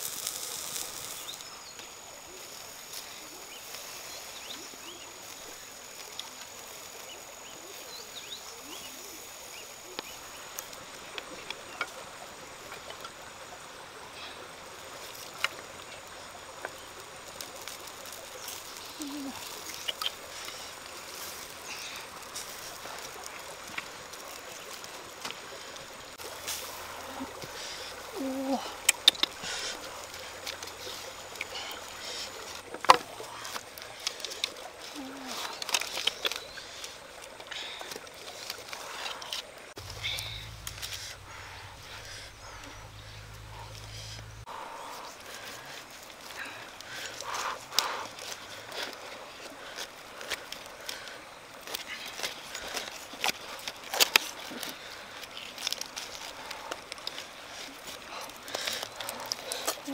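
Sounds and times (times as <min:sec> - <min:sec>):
stream hissing: 0:00.0 - 0:59.9
wood fire crackling: 0:00.0 - 0:59.9
wooden sticks clicking: 0:17.5 - 0:20.7, 0:28.8 - 0:29.8, 0:35.3 - 0:41.2.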